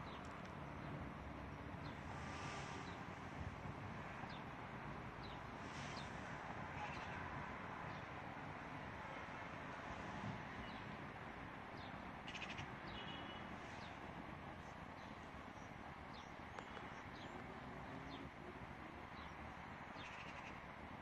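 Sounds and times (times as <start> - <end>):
birds chirping: 14.6 - 20.6.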